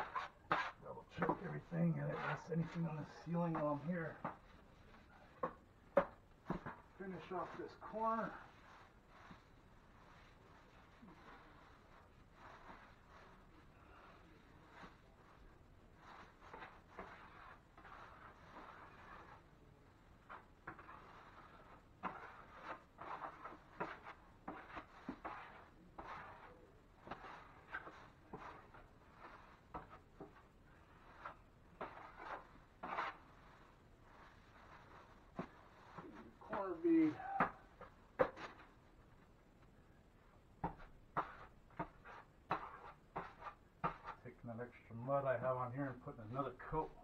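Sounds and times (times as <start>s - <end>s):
drywall knife scraping mud: 0.0s - 19.5s, 20.2s - 37.1s, 40.7s - 44.2s.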